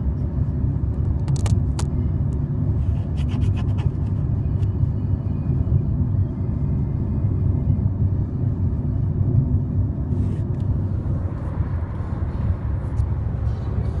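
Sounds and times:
car engine rumble: 0.0s - 14.0s
road noise: 0.0s - 14.0s
phone rustling and clicking: 1.2s - 1.9s.

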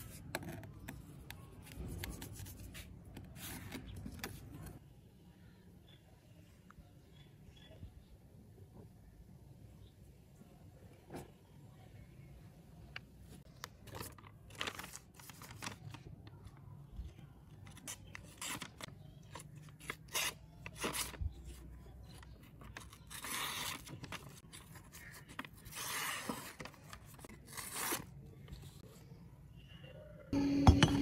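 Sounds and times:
paper rustling: 13.4s - 16.6s.

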